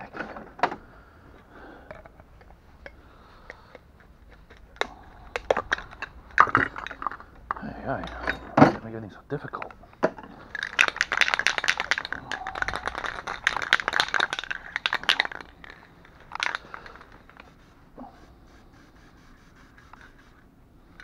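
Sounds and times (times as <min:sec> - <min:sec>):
spray can rattling when shaken: 0:10.5 - 0:20.5.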